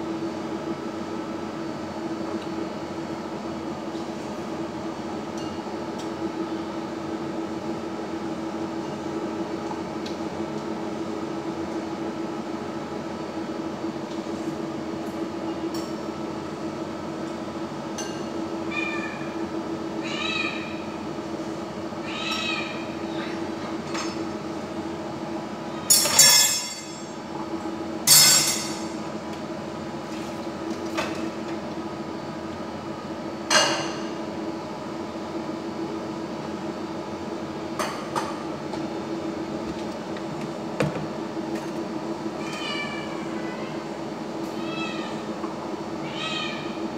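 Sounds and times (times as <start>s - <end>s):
loud clinks: 25.9s - 27.0s.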